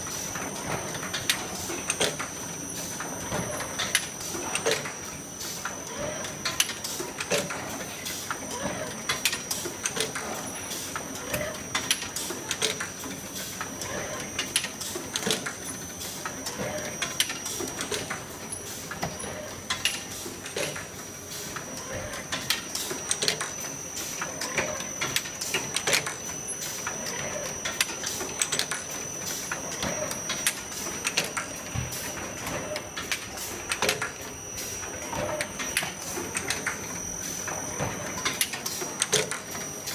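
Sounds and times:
machine clicks and metallic clanks: 0:00.1 - 0:39.9
high-pitched machine whine: 0:21.7 - 0:39.9.

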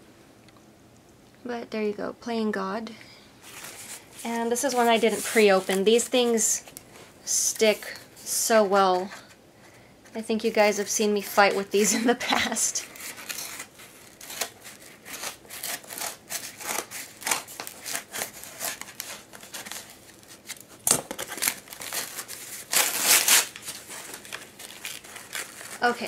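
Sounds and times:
cardboard tearing: 0:12.8 - 0:26.0
scissors cutting cardboard: 0:13.0 - 0:25.8.

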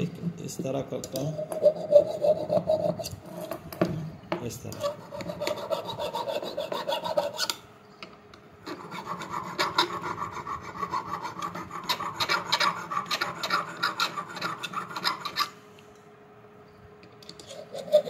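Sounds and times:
metal file rasping on metal: 0:01.3 - 0:03.6, 0:04.8 - 0:07.6, 0:08.6 - 0:15.6, 0:17.4 - 0:18.0.

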